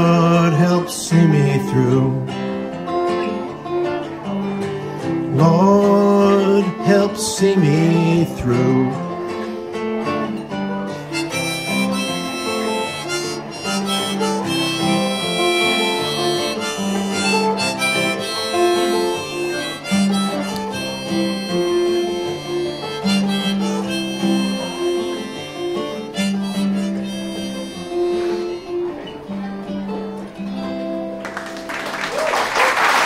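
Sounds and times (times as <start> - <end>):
acoustic guitar: 0.0 - 32.1
harmonica playing: 6.0 - 29.6.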